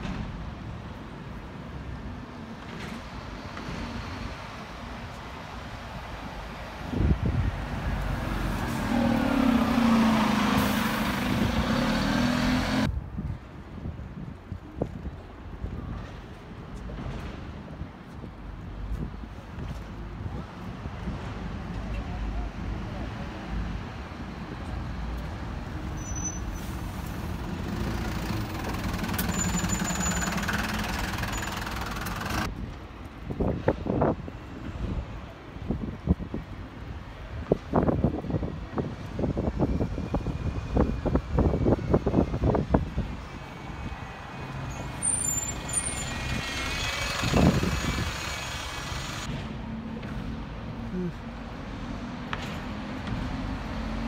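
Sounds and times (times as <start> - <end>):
bus driving past: 1.9 - 12.9, 21.2 - 32.5, 39.2 - 54.0.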